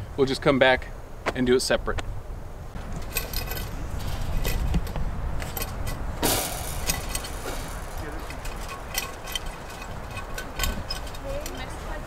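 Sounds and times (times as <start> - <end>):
wind rumbling on microphone: 0.0 - 12.0
metallic clinking of wire tools: 3.0 - 11.7.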